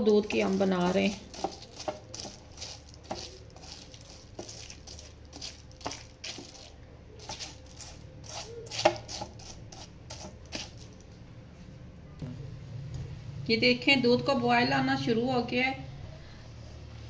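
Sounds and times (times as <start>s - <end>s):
pastry brush swishing on paper: 0.5s - 10.7s.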